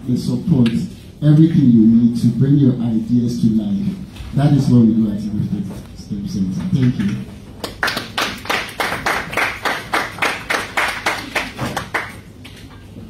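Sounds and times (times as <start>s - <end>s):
hands clapping: 6.7s - 12.7s.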